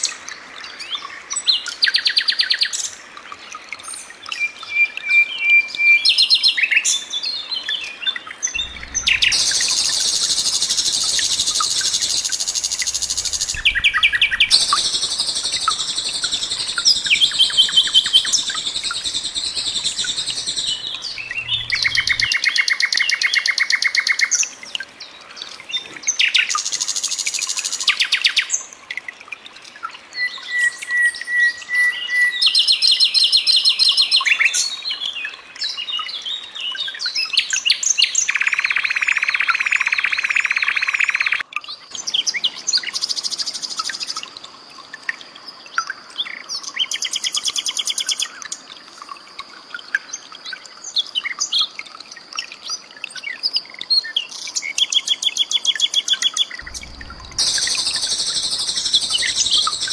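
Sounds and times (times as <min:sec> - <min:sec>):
nightingale singing: 0:08.5 - 0:24.0, 0:54.8 - 0:59.9.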